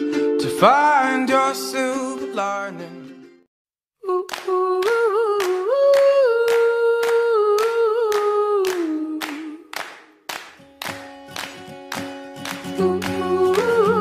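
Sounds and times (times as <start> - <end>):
handclap-like beat: 4.2 - 14.0.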